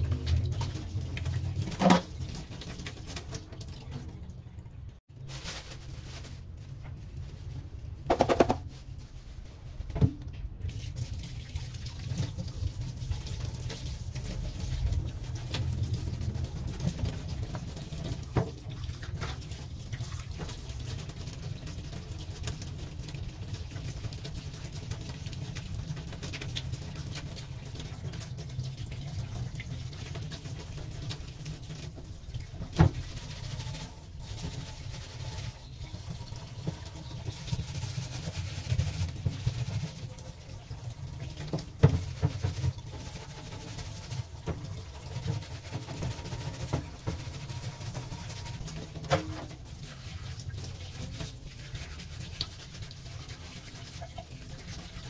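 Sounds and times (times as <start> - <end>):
sink strainer being scrubbed: 0.0 - 3.6, 5.1 - 55.0
tap water running into sink: 0.0 - 4.4, 9.9 - 55.0
metal clanking on steel sink: 48.0 - 49.6.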